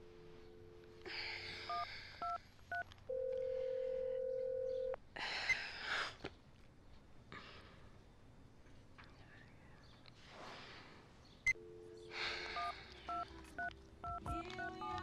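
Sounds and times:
keypad tones: 0.0s - 5.0s, 11.5s - 15.0s
phone dial tone: 0.0s - 5.0s, 11.5s - 15.0s
phone ringback tone: 0.0s - 5.0s, 11.5s - 15.0s.

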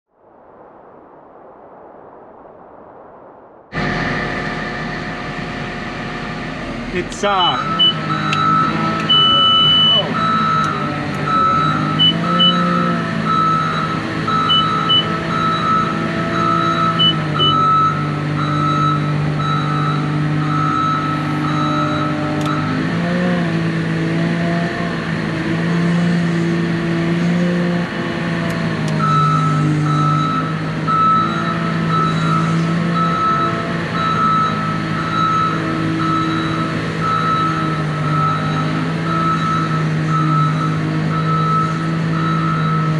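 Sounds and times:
diesel engine running: 3.7s - 42.9s
reversing alarm beeping: 3.8s - 23.1s, 29.0s - 42.9s
short high beeps: 7.2s - 20.0s.

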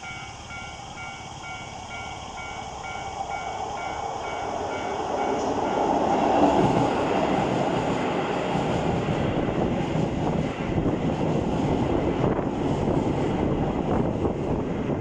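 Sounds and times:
level crossing alarm: 0.0s - 6.0s
electric train passing: 0.0s - 15.0s.

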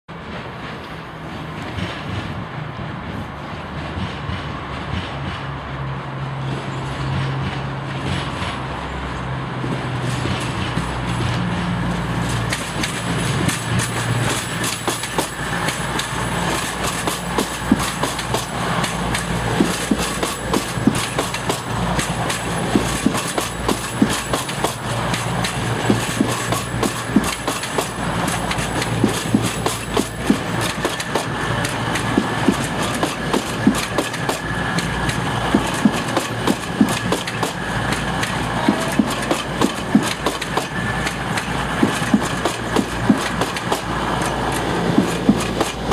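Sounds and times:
diesel train rumbling past: 0.1s - 45.9s
wheels clattering over rail joints: 9.6s - 45.9s.

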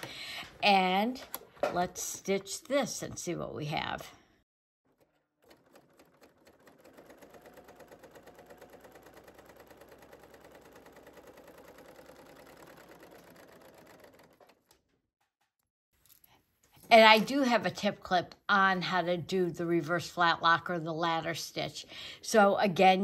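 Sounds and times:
serger stitching fabric: 4.9s - 14.9s.

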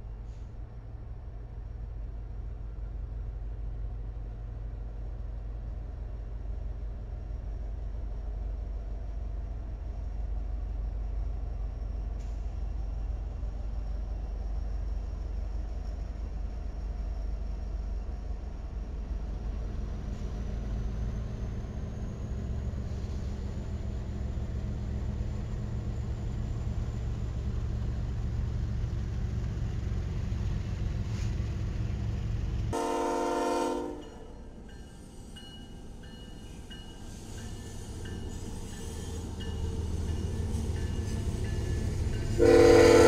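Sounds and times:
diesel locomotives rumbling: 0.0s - 43.0s
locomotive horn blast: 32.7s - 34.3s, 42.4s - 43.0s.

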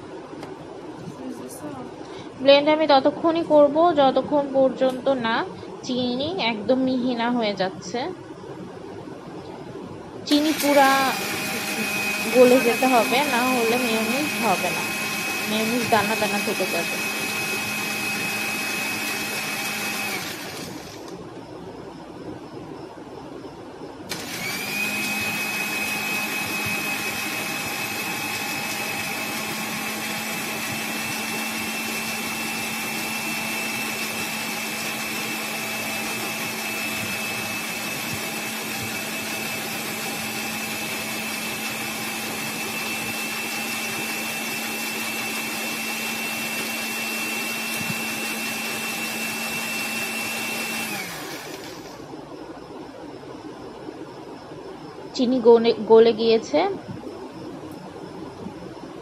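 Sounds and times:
electric blender whining: 10.3s - 21.2s, 24.1s - 52.2s.

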